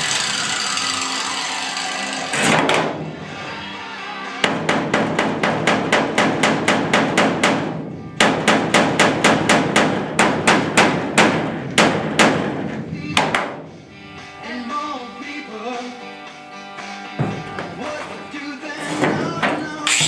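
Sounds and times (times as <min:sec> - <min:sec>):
hammer beating on sheet metal: 0:02.3 - 0:03.2, 0:04.4 - 0:13.7.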